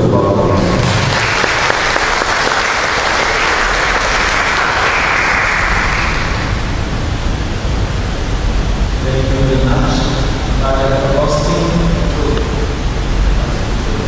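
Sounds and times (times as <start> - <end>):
crowd applauding: 0.4 - 6.7.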